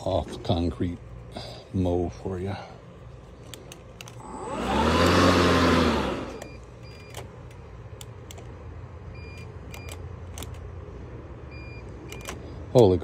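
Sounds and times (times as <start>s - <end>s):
lawn mower motor spinning down: 4.2s - 6.6s.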